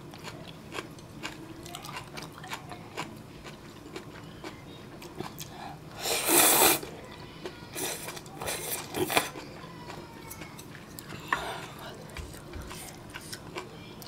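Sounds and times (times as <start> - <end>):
chewing: 0.1 - 5.6, 6.6 - 14.0
person slurping noodles: 6.0 - 6.9.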